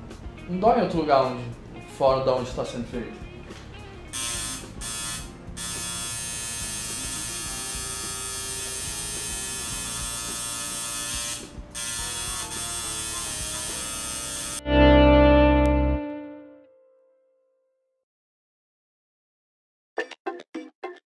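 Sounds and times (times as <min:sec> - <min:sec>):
tattoo machine buzzing: 0:04.1 - 0:14.6.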